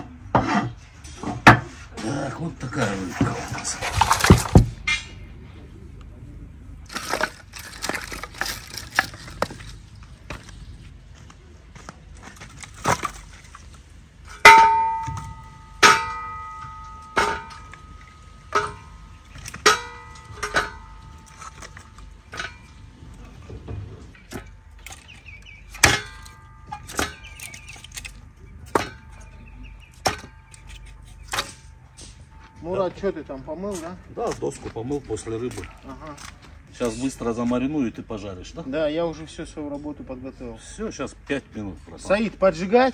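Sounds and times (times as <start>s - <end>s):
ringing metallic clang: 14.3s - 22.9s, 24.1s - 33.3s
hatchet chopping wood knocks: 30.0s - 30.4s.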